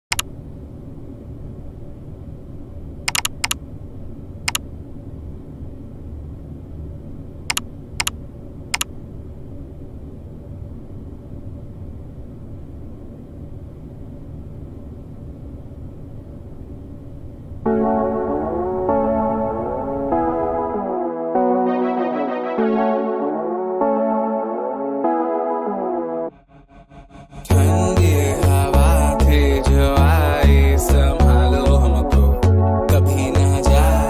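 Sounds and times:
sharp thin clicks: 0:03.1 - 0:03.6
low rumble: 0:26.3 - 0:34.0.

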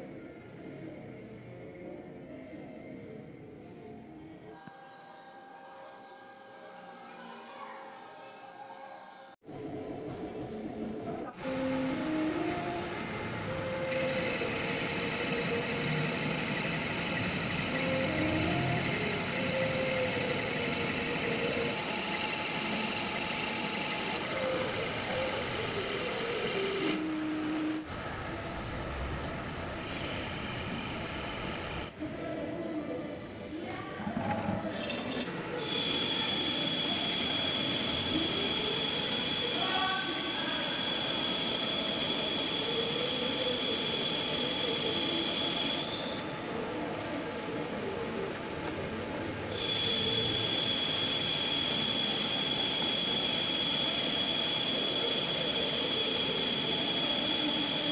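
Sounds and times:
faint wavering cutting whine: 0:04.5 - 0:09.4, 0:10.6 - 0:28.0, 0:29.8 - 0:32.0, 0:34.8 - 0:46.8, 0:49.5 - 0:57.9
metal lathe humming: 0:11.6 - 0:27.0, 0:35.6 - 0:46.2, 0:49.5 - 0:57.9.

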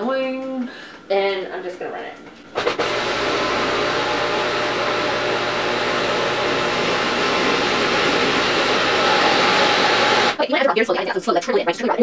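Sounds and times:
food processor motor running: 0:02.6 - 0:10.4.

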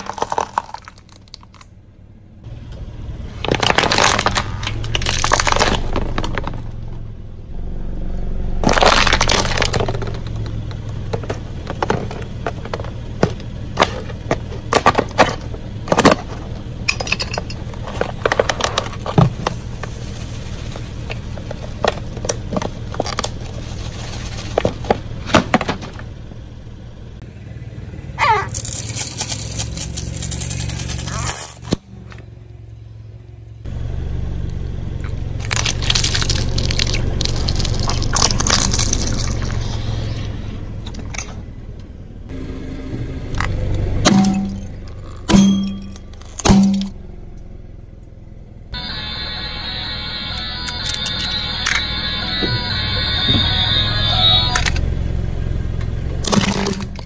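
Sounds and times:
tyre crushing brittle objects: 0:00.0 - 0:01.7, 0:03.4 - 0:06.8, 0:08.6 - 0:16.6, 0:28.5 - 0:32.3, 0:35.4 - 0:39.7, 0:56.2 - 0:57.0
car engine running low: 0:00.0 - 0:57.0.

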